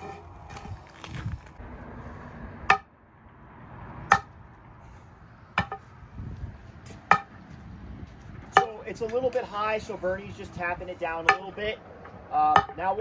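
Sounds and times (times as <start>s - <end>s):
sledgehammer striking steel pipe: 2.6s - 2.9s, 4.1s - 4.4s.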